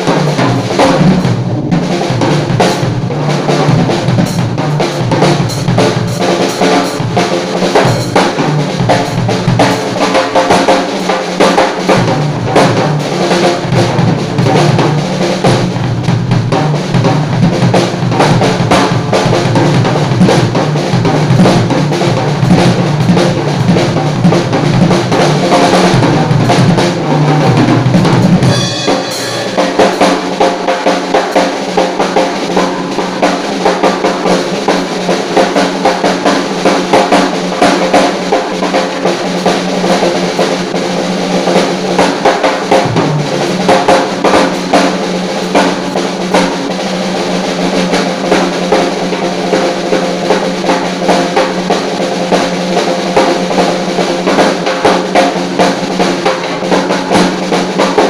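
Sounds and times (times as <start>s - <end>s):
snare and tom strokes: 0.0s - 58.0s
bass drum strokes: 12.0s - 30.7s.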